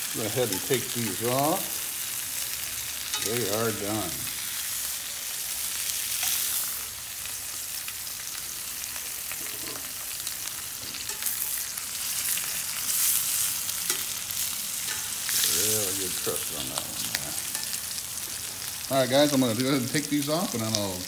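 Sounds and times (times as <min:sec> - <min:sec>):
steaks sizzling in a skillet: 0:00.0 - 0:21.0
metal tongs clicking: 0:14.8 - 0:15.2.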